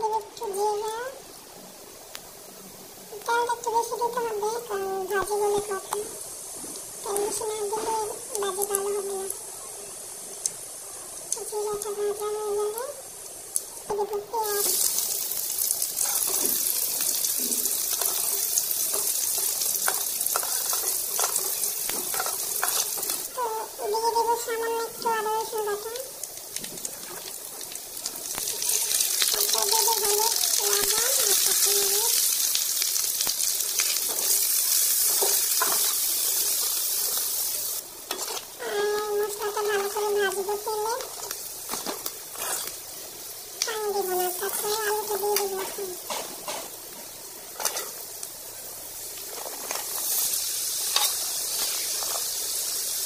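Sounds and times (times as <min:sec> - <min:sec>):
person's voice: 0:00.0 - 0:01.2, 0:03.1 - 0:06.2, 0:07.0 - 0:09.4, 0:11.4 - 0:13.0, 0:13.9 - 0:14.8, 0:23.3 - 0:26.1, 0:29.3 - 0:32.2, 0:38.6 - 0:41.1, 0:43.6 - 0:46.0
onions sizzling in hot oil: 0:00.0 - 0:53.0
spatula scraping wok: 0:14.4 - 0:24.2, 0:33.8 - 0:48.2, 0:49.1 - 0:52.8
metal spatula scraping pan: 0:17.4 - 0:23.3, 0:41.0 - 0:42.7, 0:47.6 - 0:48.0.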